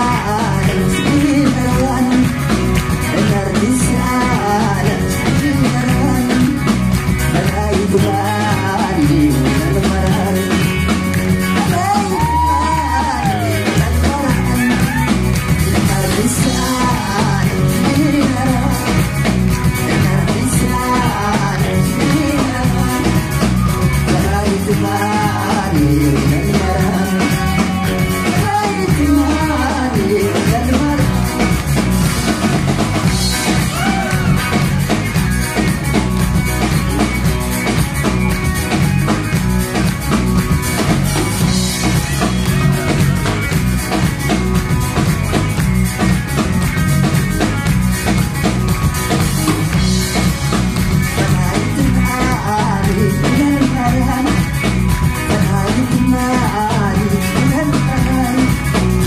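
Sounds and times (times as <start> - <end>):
man singing: 0.0 - 31.9, 51.0 - 59.0
drum kit beat: 0.0 - 59.0
electric guitars: 0.0 - 59.0.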